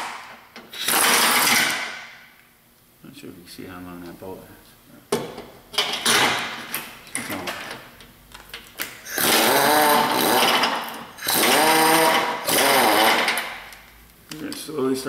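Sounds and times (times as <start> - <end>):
power wrench whining: 0.0 - 2.1, 9.0 - 13.7.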